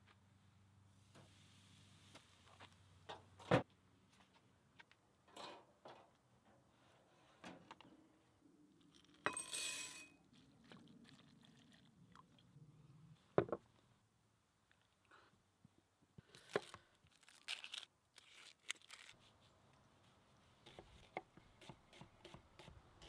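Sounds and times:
onion skin crackling: 0:16.4 - 0:19.2.

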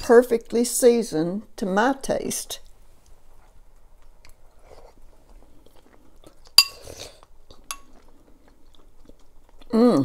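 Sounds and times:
person chewing soup: 0:03.0 - 0:10.0
spoon clinking on bowl: 0:06.6 - 0:06.8.

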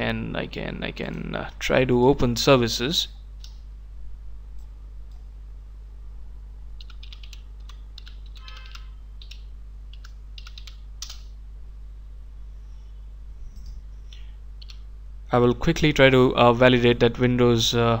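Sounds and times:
steady low hum: 0:00.0 - 0:18.0
keyboard typing: 0:06.8 - 0:11.3, 0:14.6 - 0:14.8.

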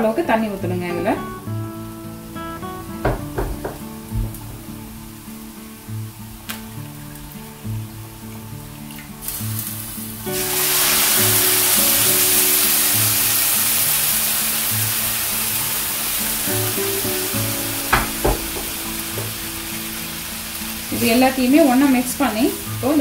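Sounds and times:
background music: 0:00.0 - 0:23.0
water sizzling in hot pan: 0:00.0 - 0:23.0
sharp knocks: 0:03.0 - 0:04.9, 0:17.8 - 0:19.4.

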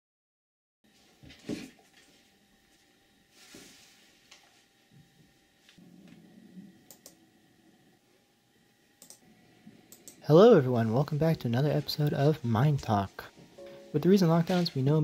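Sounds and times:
brushing rustle: 0:03.3 - 0:04.7, 0:14.2 - 0:15.0.

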